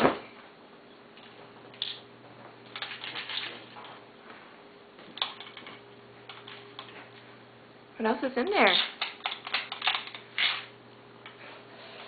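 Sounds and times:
low steady hum: 0.0 - 12.0
plastic toy clicking and rustling: 8.7 - 10.7.

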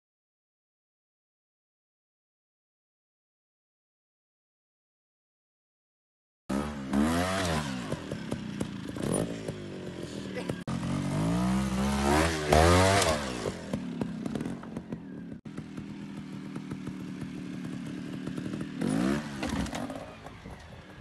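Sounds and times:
trials motorcycle engine revving: 6.5 - 21.0.

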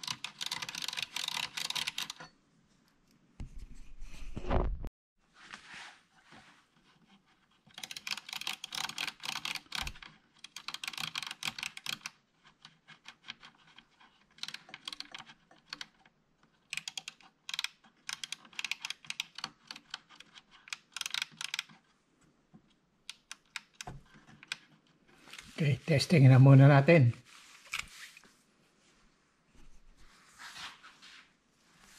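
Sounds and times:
small clicks and rustles: 5.5 - 25.6.

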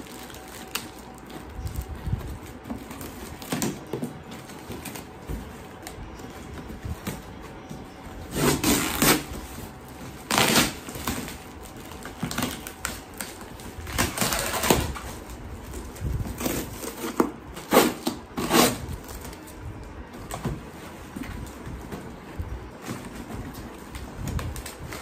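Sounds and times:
packing tape ripping: 0.0 - 5.1, 8.2 - 19.5
cardboard rustling: 0.0 - 25.0.

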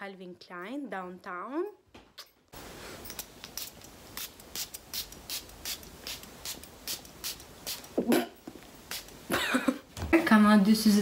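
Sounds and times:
perfume atomizer spraying: 2.6 - 9.3.

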